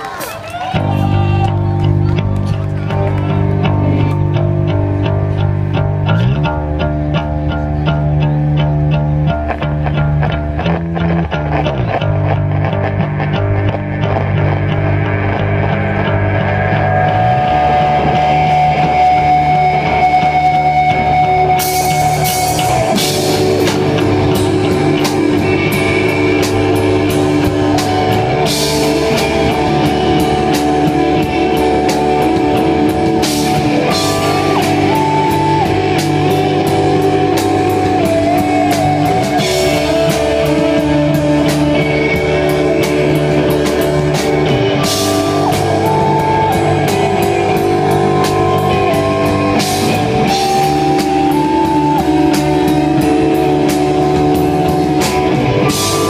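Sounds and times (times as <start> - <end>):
bass guitar: 0.0 - 56.0
electric guitars: 0.0 - 56.0
drum kit with cymbals: 17.3 - 56.0.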